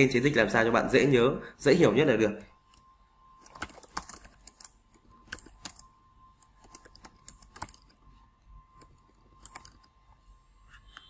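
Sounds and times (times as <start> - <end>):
faint steady tone: 0.0 - 11.0
keyboard typing: 2.7 - 8.0, 8.7 - 10.0.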